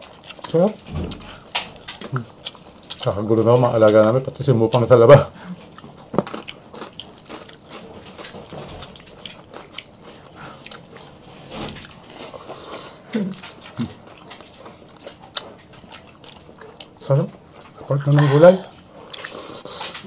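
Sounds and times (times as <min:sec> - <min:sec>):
people chewing: 0:00.0 - 0:20.0.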